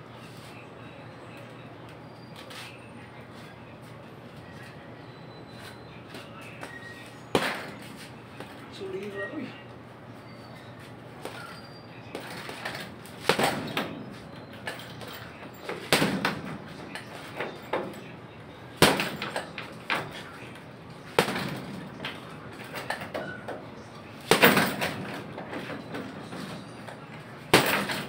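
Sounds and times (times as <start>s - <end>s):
boxing gloves punching heavy bag: 12.2s - 14.2s, 24.2s - 25.0s, 27.5s - 28.0s.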